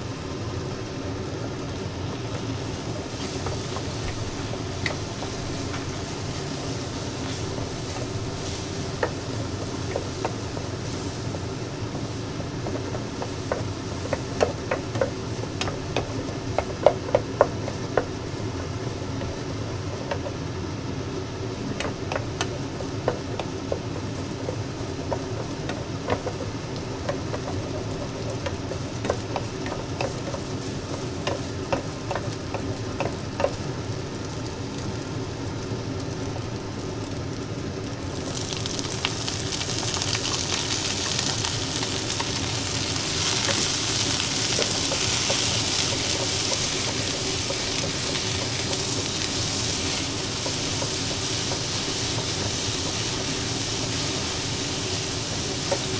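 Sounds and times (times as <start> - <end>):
loud sizzle in hot oil: 0.0 - 55.9
steady low hum: 0.0 - 55.9
spatula scraping and tapping wok: 2.1 - 20.4, 21.5 - 33.6, 39.8 - 55.9.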